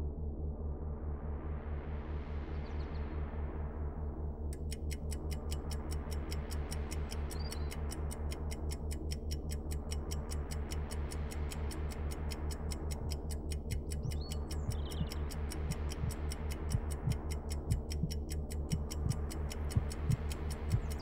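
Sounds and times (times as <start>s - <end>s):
low pulsing drone: 0.0s - 21.0s
clock-like ticking: 4.5s - 21.0s.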